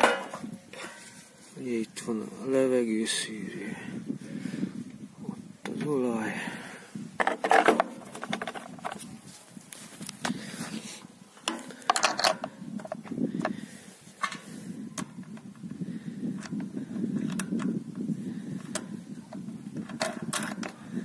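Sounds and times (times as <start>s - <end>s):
metal scraping on plastic: 7.2s - 9.2s
clicks of metal parts: 11.4s - 13.6s, 14.2s - 15.4s, 16.4s - 17.8s, 18.6s - 20.8s.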